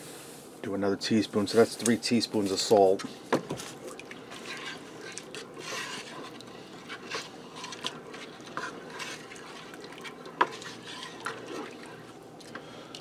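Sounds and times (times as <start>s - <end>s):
spoon stirring soup in pot: 3.6s - 12.2s.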